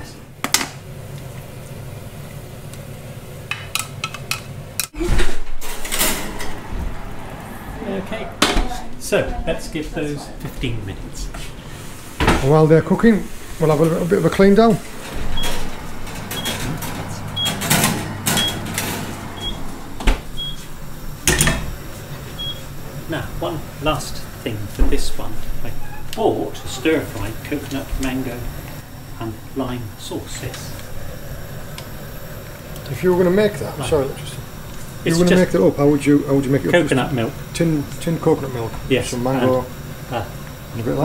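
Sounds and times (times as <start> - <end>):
steady low hum: 0.0 - 41.0
cookware and utensils clattering: 15.0 - 19.3
food sizzling in pan: 20.6 - 41.0.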